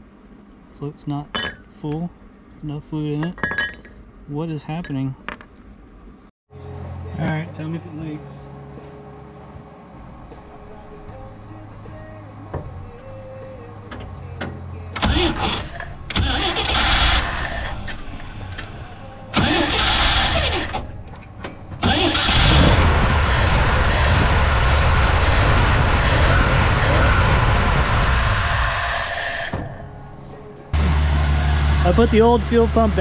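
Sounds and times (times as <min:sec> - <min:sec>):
engine running: 0:06.5 - 0:33.0
engine starter cranking: 0:15.0 - 0:24.5.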